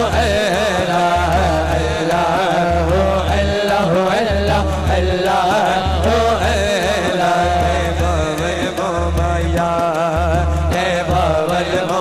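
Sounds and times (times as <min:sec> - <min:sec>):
man singing devotional song: 0:00.0 - 0:12.0.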